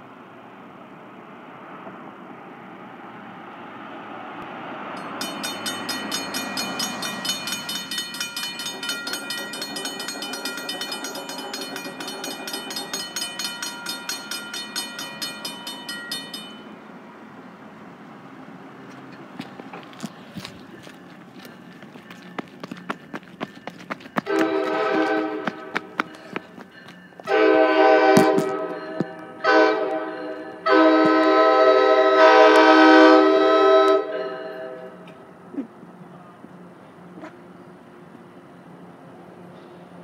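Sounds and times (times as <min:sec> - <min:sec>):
passing car road noise: 0:00.0 - 0:40.0
crossing bell ringing: 0:04.9 - 0:17.2, 0:19.1 - 0:35.4.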